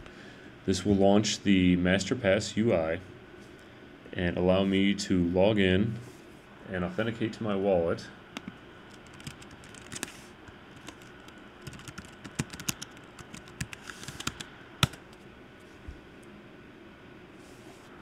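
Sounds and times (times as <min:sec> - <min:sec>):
computer keyboard typing: 0:08.4 - 0:10.1, 0:10.7 - 0:15.0.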